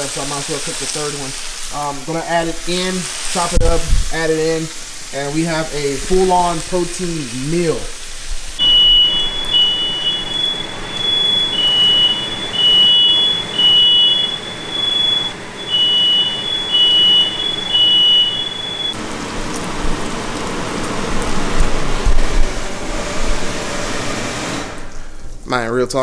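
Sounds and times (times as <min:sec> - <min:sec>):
bacon sizzling in a skillet: 0:00.0 - 0:11.7, 0:18.5 - 0:22.5
smoke alarm beeping: 0:08.6 - 0:19.0
steady high tone: 0:08.6 - 0:19.0.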